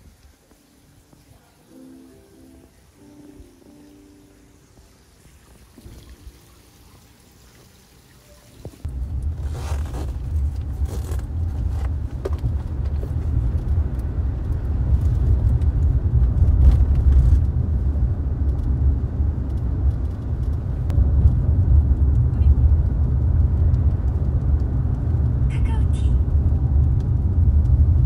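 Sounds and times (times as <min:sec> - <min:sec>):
car road rumble: 0:08.7 - 0:28.0.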